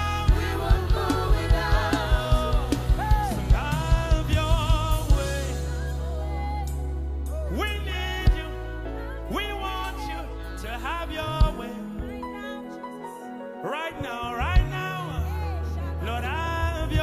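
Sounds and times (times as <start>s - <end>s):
steady low beat: 0.0s - 5.9s
band playing gospel music: 0.0s - 17.0s
group of singers: 0.0s - 17.0s
lead vocalist singing: 0.0s - 17.0s.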